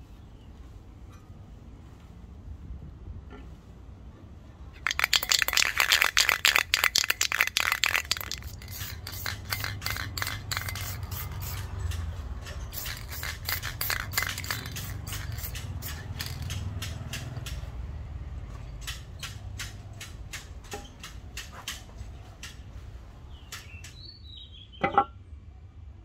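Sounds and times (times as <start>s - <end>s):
hand scraping steel shovel: 8.5s - 16.7s.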